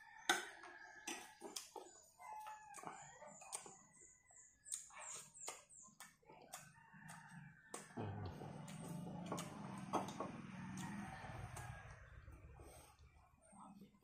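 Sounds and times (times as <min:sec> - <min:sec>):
soft chewing: 0:00.7 - 0:14.0
bird chirping: 0:01.4 - 0:06.4.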